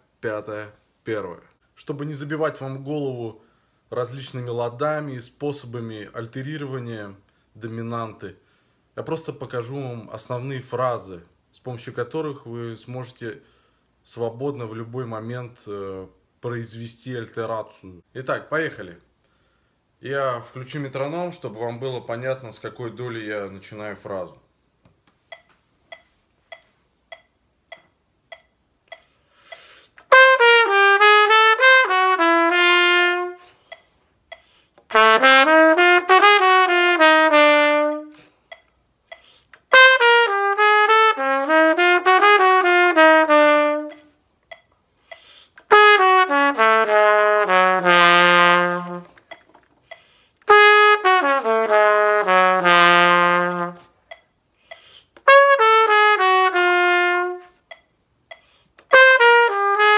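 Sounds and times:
metronome clicking: 0:25.2 - 0:30.2, 0:33.5 - 0:35.0, 0:37.8 - 0:39.8, 0:43.7 - 0:45.8, 0:48.6 - 0:50.5, 0:53.4 - 0:55.3, 0:57.6 - 0:59.0
trumpet playing jazz phrases: 0:30.0 - 0:33.8, 0:34.8 - 0:38.4, 0:39.6 - 0:44.2, 0:45.6 - 0:49.3, 0:50.4 - 0:54.0, 0:55.2 - 0:57.7, 0:58.8 - 0:59.9.

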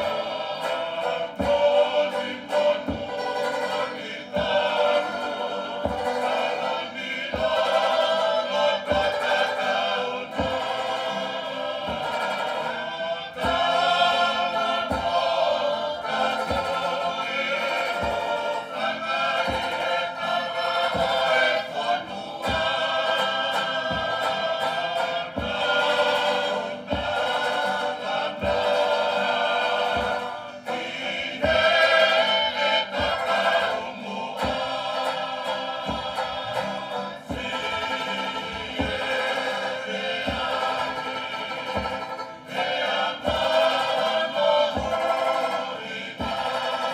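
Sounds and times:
banjo and guitars: 0:00.0 - 0:46.9
group singing in harmony: 0:00.0 - 0:46.9
steady low beat: 0:00.0 - 0:46.9.

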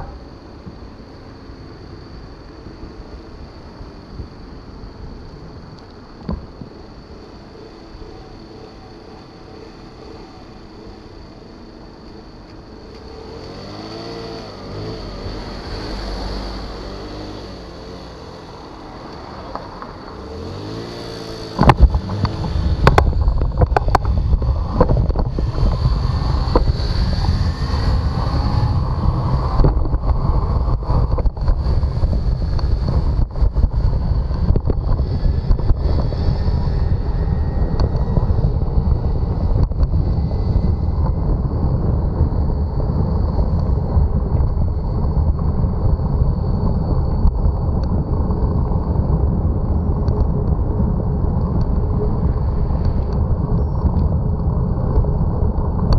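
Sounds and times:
car engines passing: 0:06.9 - 0:47.3
wind buffeting microphone: 0:13.4 - 0:55.9.

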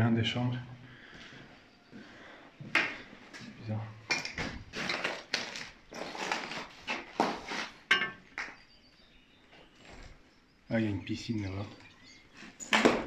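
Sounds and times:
knocks and clinks: 0:07.9 - 0:08.6.

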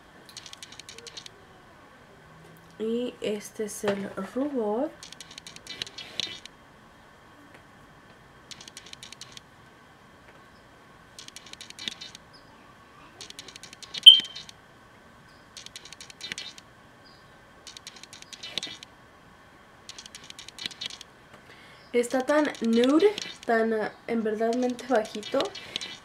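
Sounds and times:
sharp tick: 0:08.5 - 0:09.4, 0:11.2 - 0:12.2, 0:15.6 - 0:16.6, 0:17.7 - 0:18.9, 0:19.9 - 0:21.1, 0:22.2 - 0:23.5, 0:24.5 - 0:26.0.

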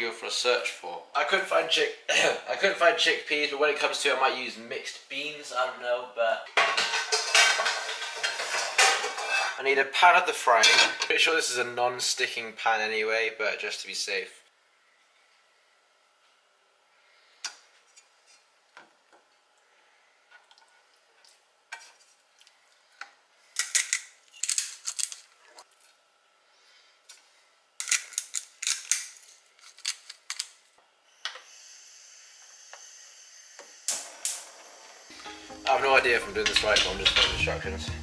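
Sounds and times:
cooking utensils clattering: 0:06.6 - 0:09.6, 0:10.6 - 0:11.1, 0:35.2 - 0:38.0.

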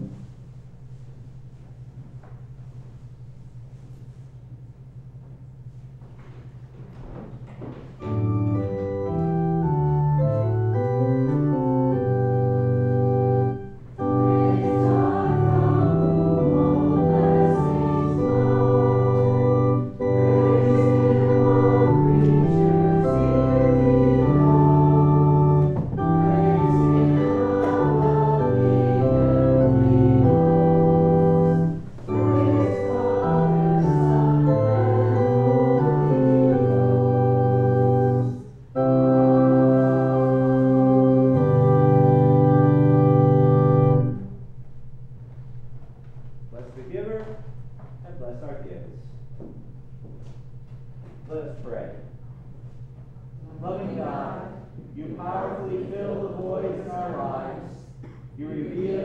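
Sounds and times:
church organ playing chords: 0:08.0 - 0:54.8.

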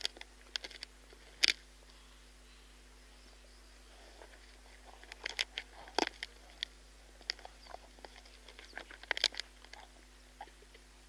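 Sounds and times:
hyena crunching bones: 0:00.0 - 0:01.7, 0:03.9 - 0:10.8.

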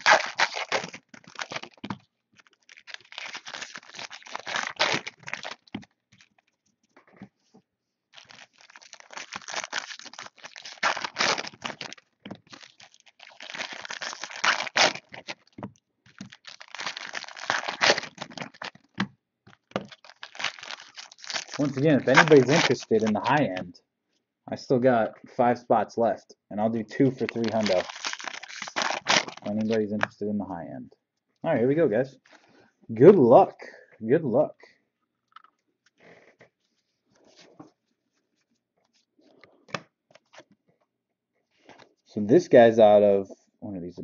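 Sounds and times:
foil wrappers torn and crinkled: 0:00.0 - 0:06.6, 0:08.2 - 0:23.6, 0:27.0 - 0:30.1
cards rustling and clicking: 0:08.2 - 0:23.6, 0:27.0 - 0:30.1.

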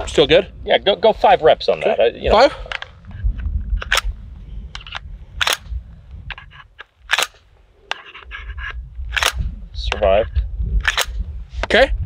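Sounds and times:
pistol slide clacking: 0:06.3 - 0:08.3, 0:10.8 - 0:11.1.

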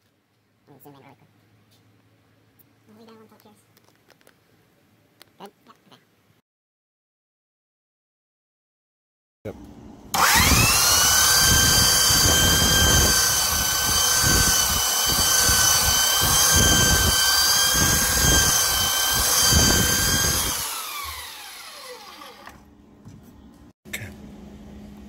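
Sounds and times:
power sander whining: 0:10.1 - 0:22.7.

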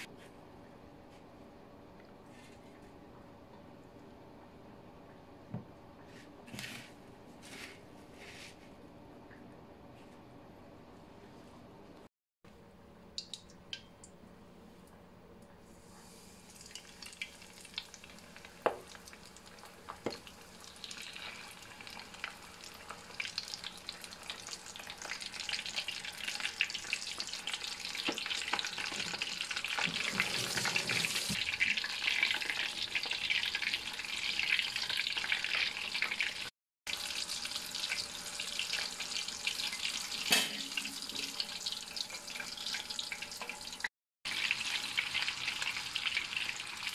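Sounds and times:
shrimp sizzling in hot oil: 0:16.0 - 0:46.9.

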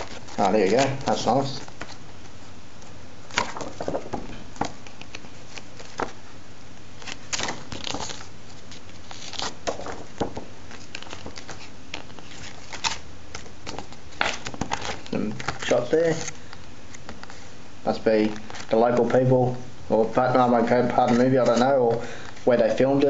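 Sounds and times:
paper pages rustling: 0:00.0 - 0:06.3, 0:07.0 - 0:23.0
background hiss: 0:00.0 - 0:23.0.

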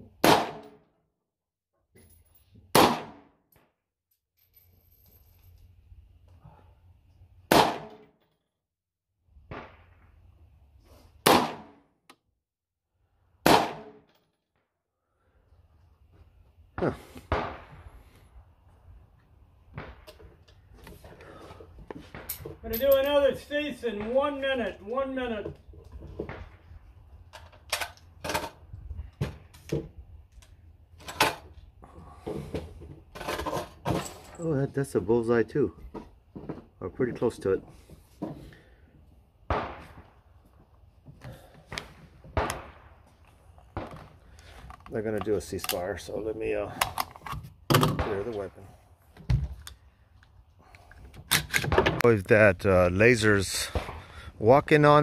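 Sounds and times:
faint gunshot: 0:00.2 - 0:00.7, 0:02.7 - 0:03.3, 0:07.5 - 0:08.0, 0:11.2 - 0:11.8, 0:13.4 - 0:14.0, 0:17.2 - 0:17.8, 0:39.5 - 0:40.0
rifle shots with echo: 0:02.8 - 0:03.3, 0:07.5 - 0:08.0, 0:11.3 - 0:11.8, 0:13.4 - 0:14.0.

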